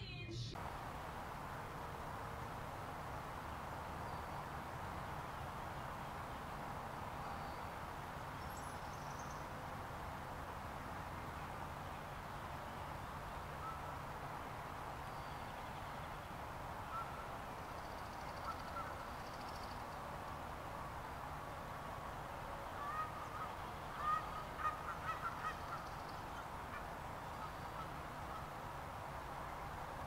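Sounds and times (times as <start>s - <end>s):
outdoor background hiss: 0.0s - 30.0s
short bird calls: 22.7s - 28.6s.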